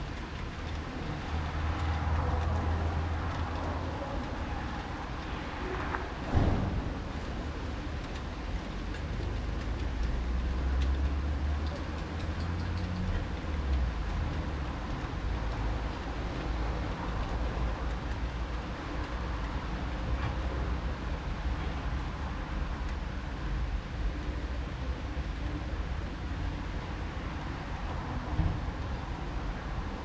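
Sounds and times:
outdoor background noise: 0.0 - 30.0
distant thunder rumble: 6.2 - 7.9.

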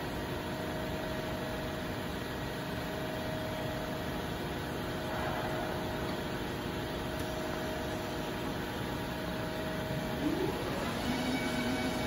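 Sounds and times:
lathe humming: 5.6 - 12.0
spindle whine spinning up: 10.0 - 12.0.

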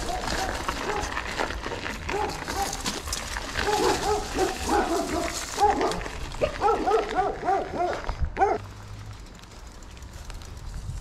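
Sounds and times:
dog barking: 0.0 - 1.1, 2.1 - 2.8, 3.6 - 8.6.

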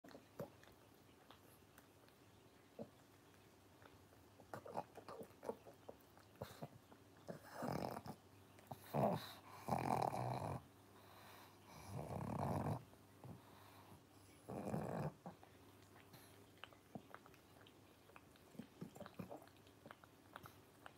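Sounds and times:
dog snoring breaths: 6.4 - 15.5.

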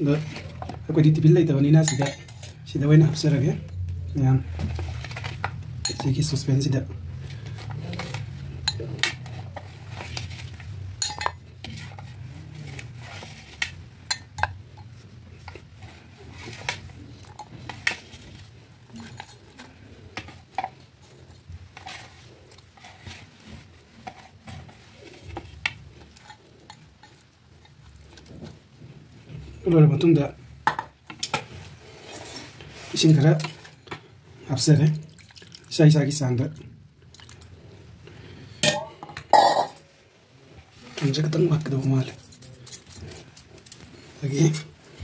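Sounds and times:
low steady hum: 0.0 - 45.0
metal spoon clinking on pot and plate: 1.8 - 2.6, 5.8 - 6.2, 11.0 - 11.4.

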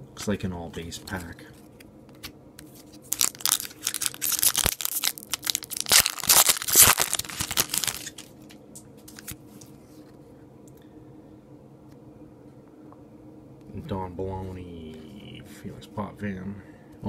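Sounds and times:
foil wrapper tearing and crinkling: 3.0 - 8.3.

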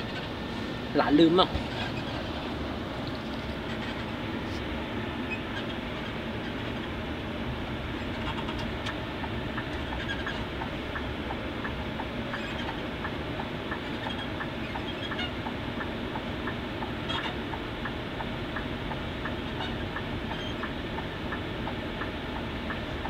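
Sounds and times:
bus engine and road noise: 0.0 - 23.0
faint ticking: 8.6 - 23.0.

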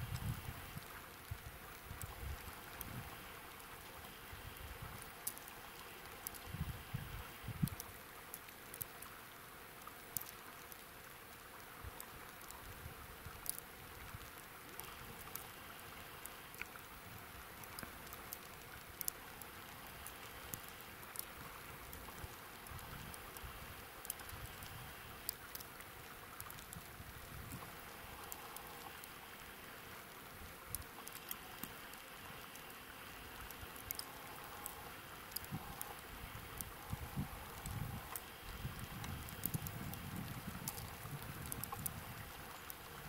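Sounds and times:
wind on microphone: 0.0 - 3.2, 6.4 - 7.8, 35.4 - 42.5
river water hiss: 0.0 - 43.0
sharp little ticks: 4.5 - 6.6, 9.8 - 29.6, 30.6 - 43.0.

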